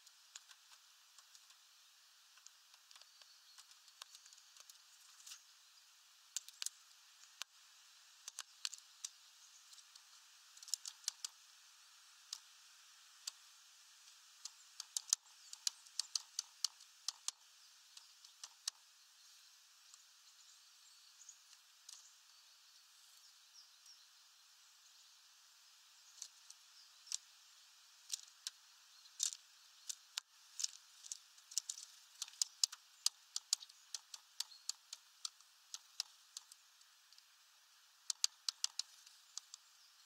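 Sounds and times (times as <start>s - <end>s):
woodpecker tapping on wood: 8.2s - 11.4s, 14.4s - 18.8s, 29.2s - 36.6s, 38.1s - 39.7s.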